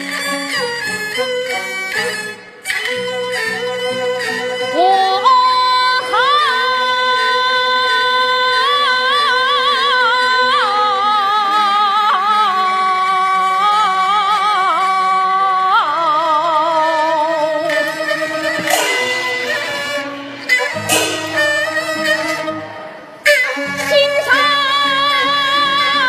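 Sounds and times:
fiddle accompaniment: 0.0s - 26.0s
woman singing opera: 4.7s - 17.9s, 23.8s - 26.0s.

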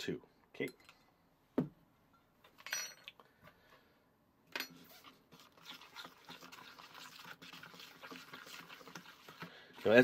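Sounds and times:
spoon squishing and scraping batter: 4.7s - 10.0s.

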